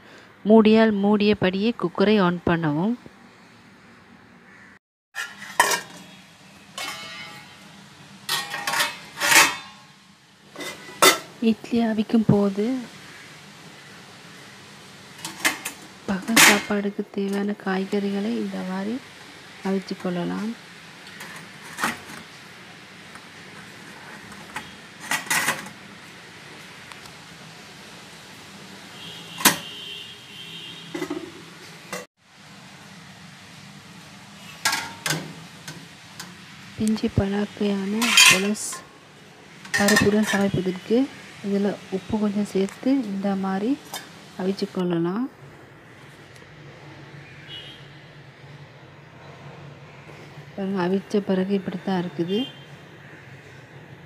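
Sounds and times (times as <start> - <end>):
metal plates clinking: 5.2 - 7.6, 8.3 - 9.9, 10.5 - 11.3, 15.2 - 16.8, 34.6 - 35.3, 37.9 - 38.9, 39.6 - 40.6
metal pot parts clanking: 5.2 - 7.6, 8.3 - 9.9, 10.5 - 11.4, 15.2 - 16.8, 24.5 - 25.8, 34.6 - 35.4, 37.9 - 38.8, 39.6 - 40.6.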